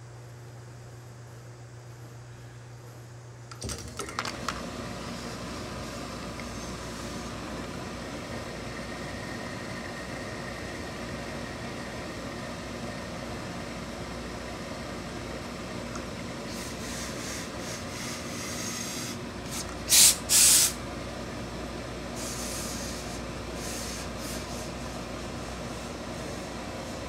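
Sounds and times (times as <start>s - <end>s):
steam press rushing hiss: 4.8s - 14.9s, 15.6s - 20.9s, 22.0s - 27.0s.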